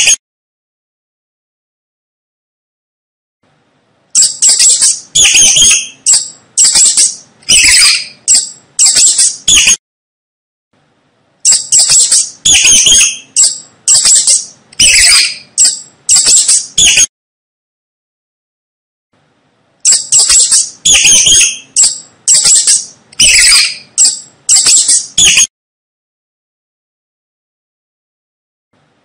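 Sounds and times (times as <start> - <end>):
mice squeaking: 4.1 - 9.8, 11.4 - 17.1, 19.8 - 25.5.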